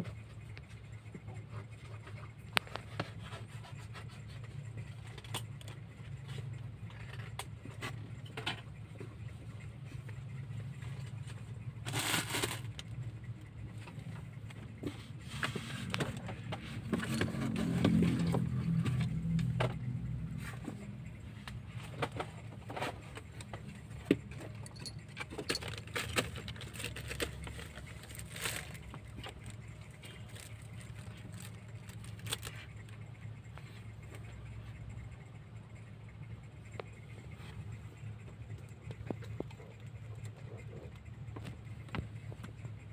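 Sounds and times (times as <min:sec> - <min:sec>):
kittens tapping and scratching cardboard: 0:14.0 - 0:32.8.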